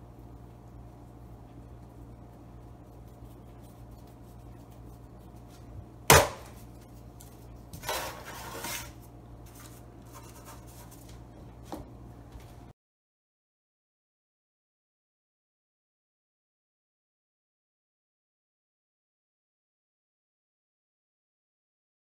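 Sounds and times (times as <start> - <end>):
low hum: 0.0 - 12.7
hands handling dough: 1.8 - 12.7
rustling and scraping: 2.7 - 12.7
sharp knock: 6.1 - 6.5.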